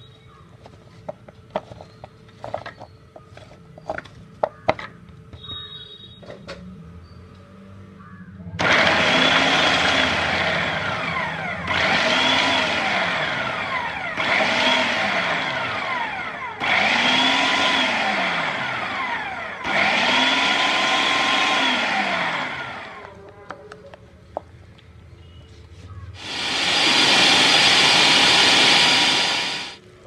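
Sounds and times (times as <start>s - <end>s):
food processor motor whine: 8.6s - 23.2s, 26.2s - 29.8s.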